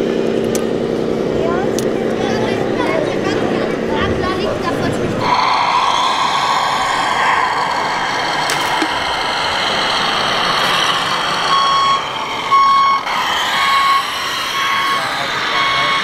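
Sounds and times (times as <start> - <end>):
simulated engine sound: 0.0 - 16.0
electronic reversing beeper: 6.0 - 16.0.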